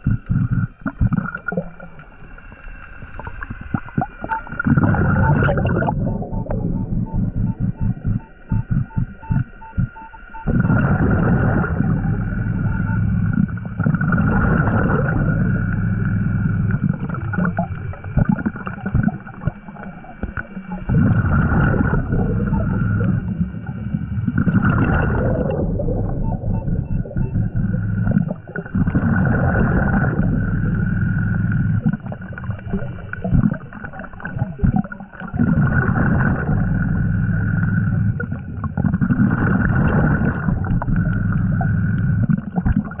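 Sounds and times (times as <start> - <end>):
regulator bubbles gurgling underwater: 0.0 - 43.0
faint high whine: 0.1 - 28.8.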